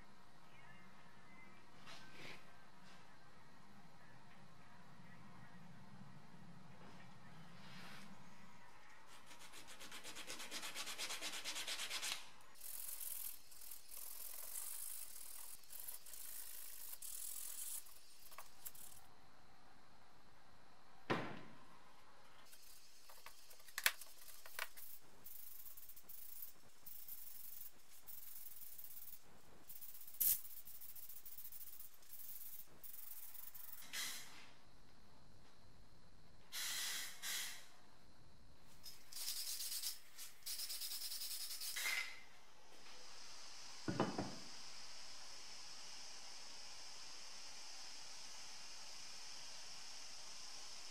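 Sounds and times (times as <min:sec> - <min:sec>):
sanding on plastic: 0:09.1 - 0:18.9.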